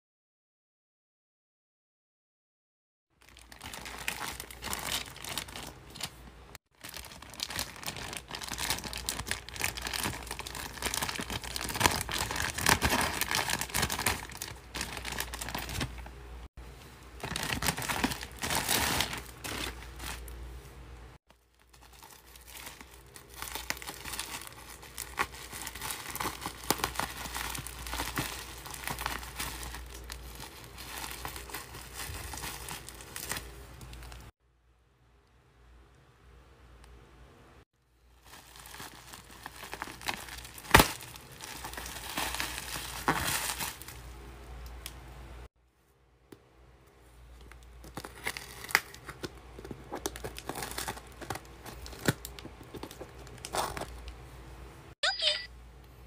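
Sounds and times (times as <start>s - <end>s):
plastic and bubble wrap crinkling: 3.2s - 16.2s, 17.1s - 20.5s, 21.3s - 34.3s, 38.1s - 44.1s, 47.4s - 54.2s.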